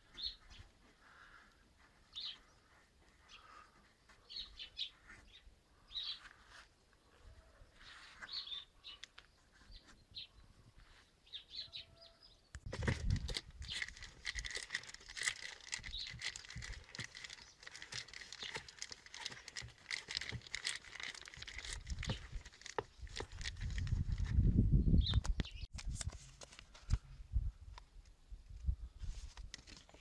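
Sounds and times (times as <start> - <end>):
paper crinkling and tearing: 12.7 - 24.3.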